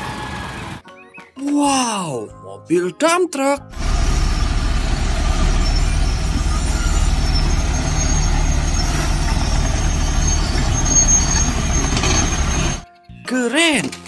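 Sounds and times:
diesel truck engine running: 0.0 - 0.8, 3.7 - 12.8.

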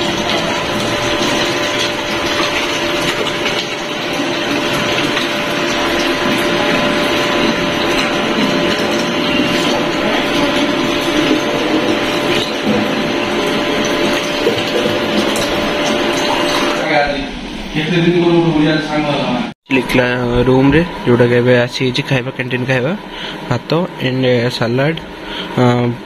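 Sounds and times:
faint steady hum: 19.7 - 26.0.

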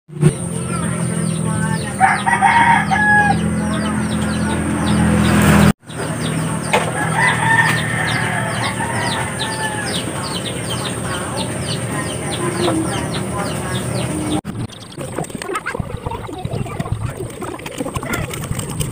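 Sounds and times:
rooster crowing: 2.0 - 3.5, 6.9 - 10.4.

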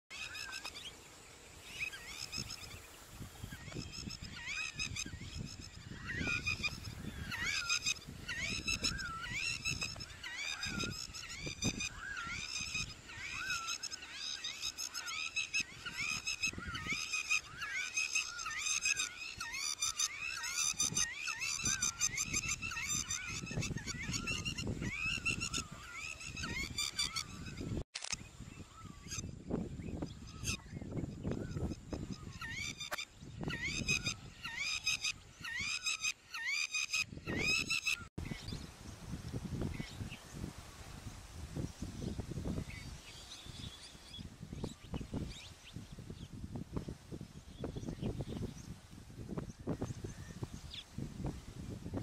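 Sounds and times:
bird squawking: 5.9 - 27.5.

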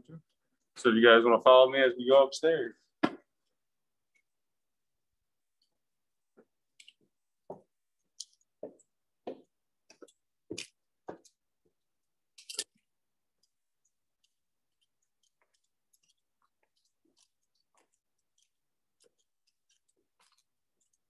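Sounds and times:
footsteps on hard floor: 7.4 - 7.7, 8.6 - 11.3.

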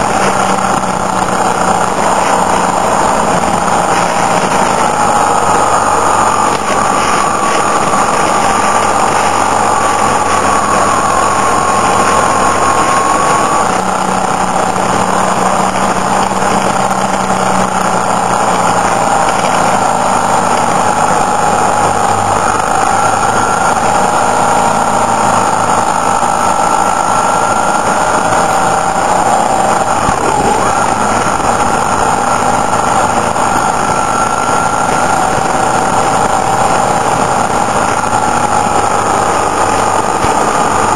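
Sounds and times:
motorcycle engine running: 0.0 - 40.9
wind rush: 0.0 - 40.9.

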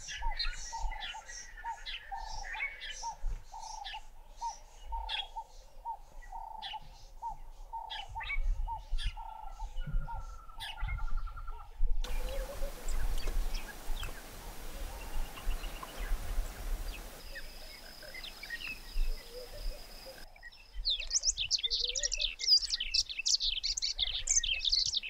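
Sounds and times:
small birds calling: 0.0 - 25.0
faint hiss: 12.0 - 20.3
higher bird chirps: 12.0 - 25.0.

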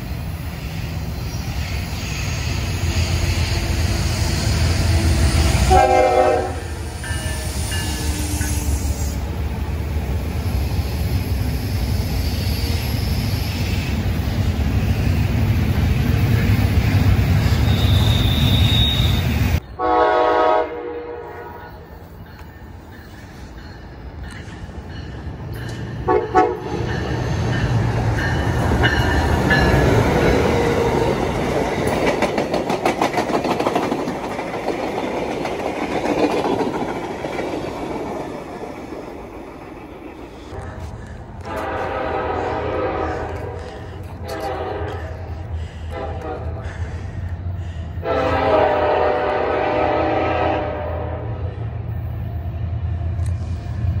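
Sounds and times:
freight train rumbling past: 0.0 - 54.0
train horn blasts: 4.9 - 9.2, 17.6 - 21.9, 26.0 - 26.8, 41.4 - 45.3, 45.9 - 46.6, 48.0 - 51.6
train wheels clicking over rail joints: 22.1 - 42.0.

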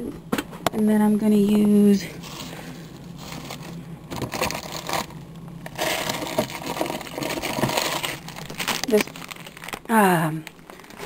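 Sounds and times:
plastic packaging rustling: 2.1 - 11.0.

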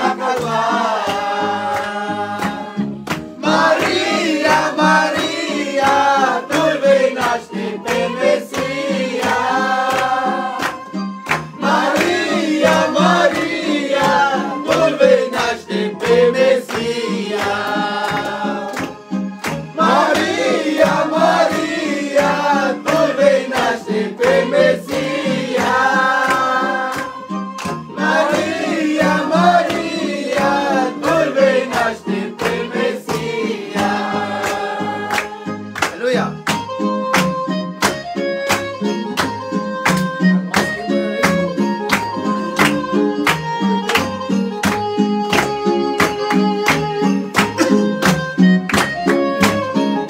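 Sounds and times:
group singing a carol: 0.0 - 35.8.

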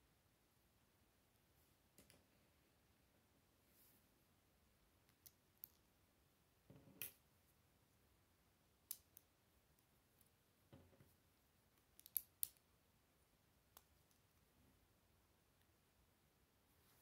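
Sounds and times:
plastic toy pieces clicking: 12.0 - 12.6.

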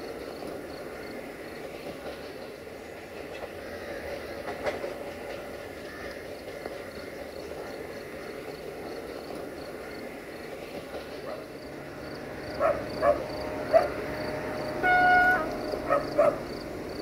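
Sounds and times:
crickets chirping: 0.0 - 17.0
dog barking: 11.3 - 11.5, 12.6 - 14.0, 15.8 - 16.5.

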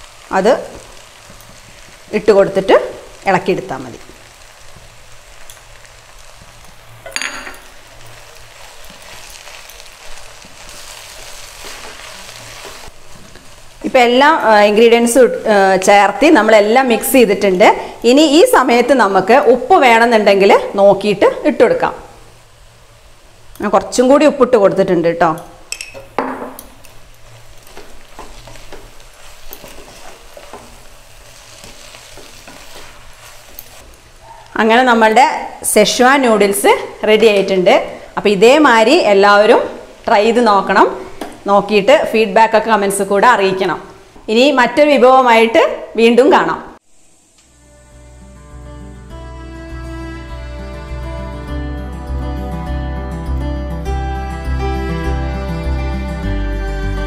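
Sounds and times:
noodles sizzling in a pot: 0.0 - 51.6
wooden spatula stirring: 8.2 - 13.4, 27.2 - 34.0.

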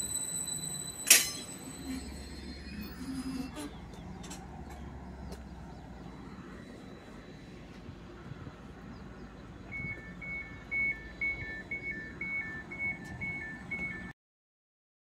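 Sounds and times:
train door warning beeps: 0.0 - 3.8, 9.7 - 14.1
low hum of train: 0.0 - 14.1.

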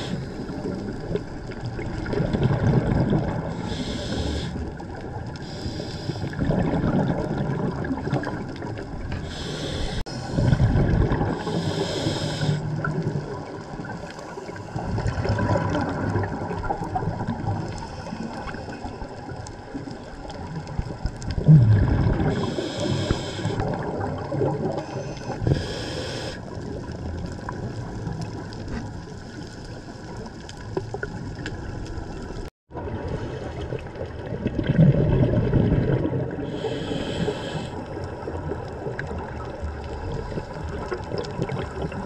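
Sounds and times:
exhaled bubbles rumbling: 0.0 - 42.0
hissing regulator inhalations: 3.5 - 4.8, 5.4 - 6.4, 9.1 - 10.6, 11.4 - 12.8, 22.3 - 23.7, 24.8 - 26.4, 36.5 - 37.9.

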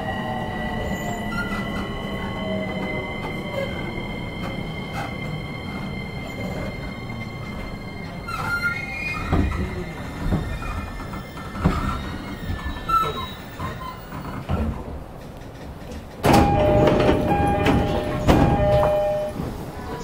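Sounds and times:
electric train slowing: 0.0 - 20.0
train doors opening: 0.0 - 20.0
brake squeals: 6.1 - 14.5
two-tone door chime: 16.3 - 19.4.

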